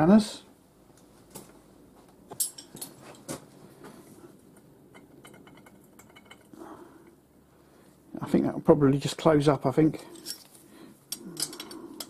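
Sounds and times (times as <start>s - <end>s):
spanners clinking on metal: 2.4s - 3.3s, 4.9s - 6.6s, 10.0s - 10.5s, 11.1s - 12.0s.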